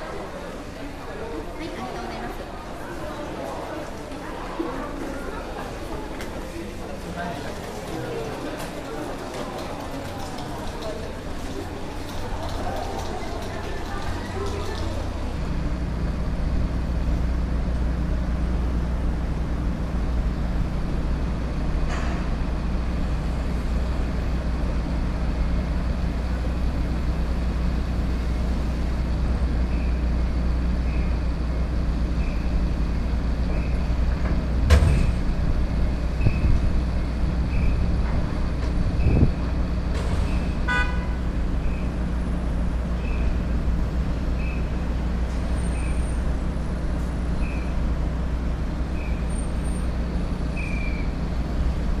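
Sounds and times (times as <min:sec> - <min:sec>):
engines idling and road traffic: 0:00.0 - 0:52.0.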